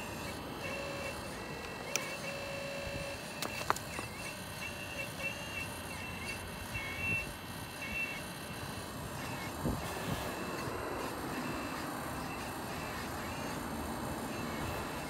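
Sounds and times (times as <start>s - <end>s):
hydraulic pump whine: 0.0s - 15.0s
sharp clicks: 1.1s - 2.4s, 3.2s - 5.4s.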